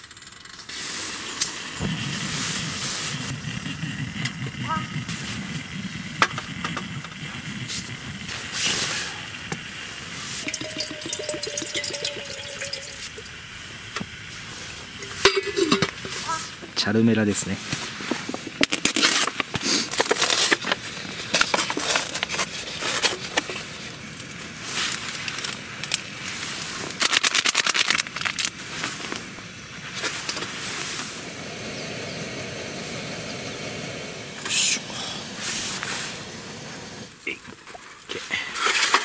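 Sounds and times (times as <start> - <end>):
hot water pouring into cup: 5.0 - 16.4
plastic film crinkling: 24.7 - 29.3.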